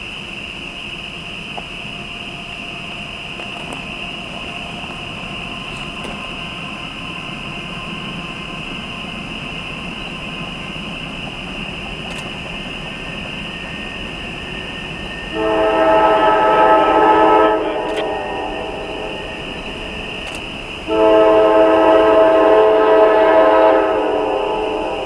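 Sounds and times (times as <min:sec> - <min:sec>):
locomotive air horn chord: 0:15.3 - 0:19.1, 0:20.8 - 0:25.0.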